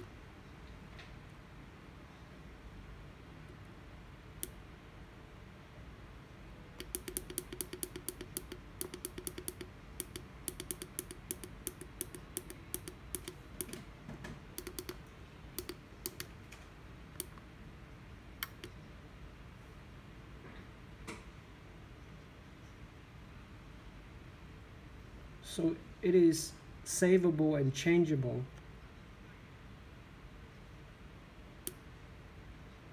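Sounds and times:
push buttons clicking: 6.8s - 13.8s, 14.6s - 16.3s, 18.4s - 18.8s.

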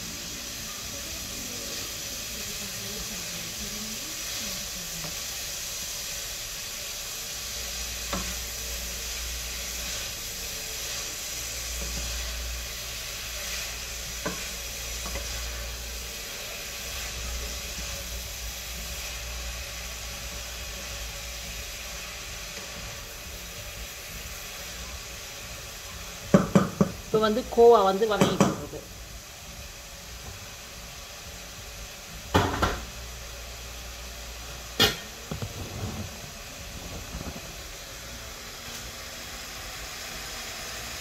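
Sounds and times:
vegetables sizzling in oil: 0.0s - 41.0s
spatula knocking pot: 14.2s - 15.3s, 26.3s - 27.0s, 28.2s - 28.7s.

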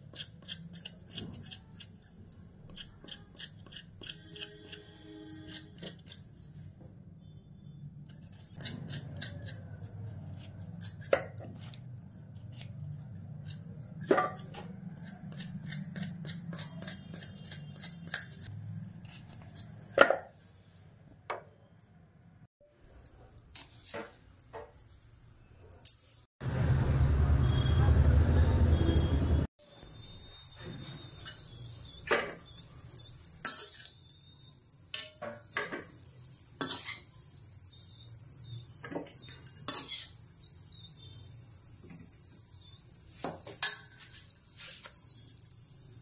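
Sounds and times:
knife cutting potatoes: 8.2s - 12.8s.

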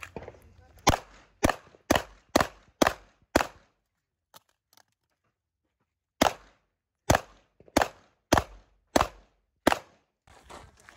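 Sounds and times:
pistol shots: 0.0s - 3.8s, 6.2s - 10.1s.

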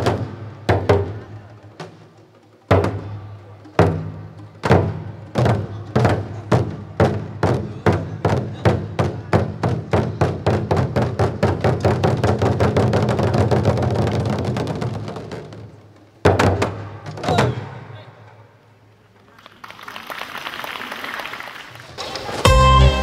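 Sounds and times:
large drums beating: 0.0s - 18.0s.

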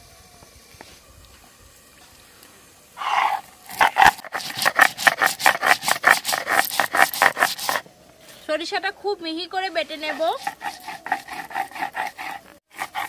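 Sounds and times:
grinding stone rasping over slab: 3.7s - 7.8s, 10.0s - 13.0s.

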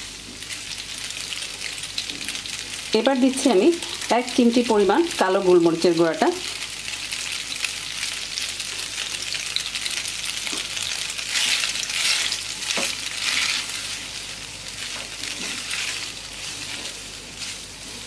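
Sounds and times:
food sizzling in a frying pan: 0.0s - 18.0s
spatula stirring in pan: 10.4s - 18.0s.

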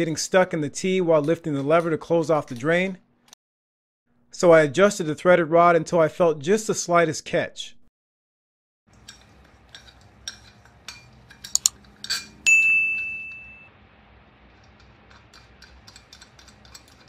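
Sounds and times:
small metal clicks and clinks: 9.0s - 13.5s, 14.7s - 17.0s
metallic ding ringing: 11.6s - 13.7s.

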